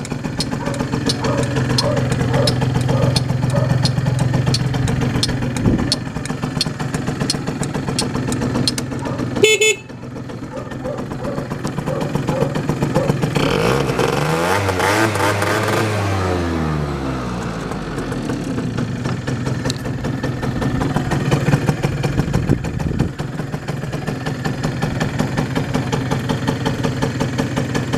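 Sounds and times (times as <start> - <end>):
scooter engine revving and idling: 0.0 - 27.9.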